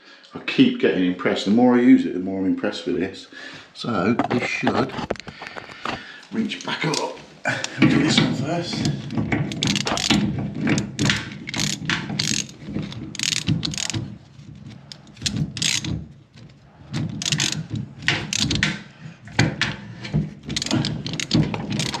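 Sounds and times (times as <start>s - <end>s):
ratchet wrench clicking: 9.5s - 10.2s, 10.8s - 14.1s, 14.8s - 15.9s, 17.2s - 18.7s, 20.6s - 22.0s.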